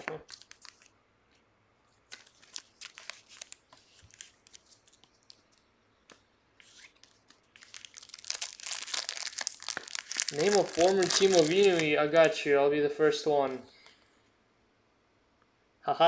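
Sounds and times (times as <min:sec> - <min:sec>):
plastic crinkling and rustling: 0:00.0 - 0:00.9, 0:02.0 - 0:05.7, 0:06.6 - 0:12.4.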